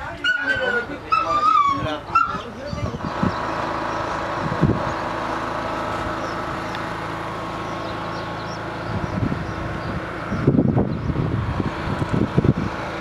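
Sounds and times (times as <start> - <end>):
motor humming: 0.7 - 13.0.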